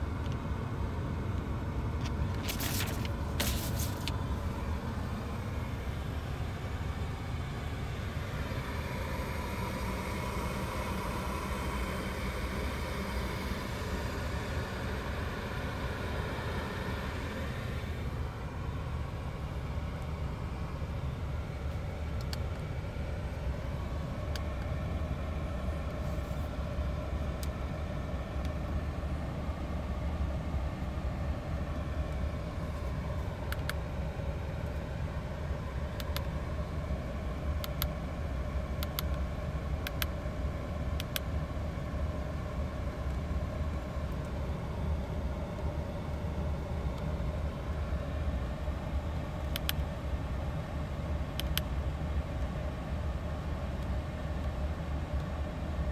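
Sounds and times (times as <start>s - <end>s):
faint steady tones: 2.8s - 55.9s.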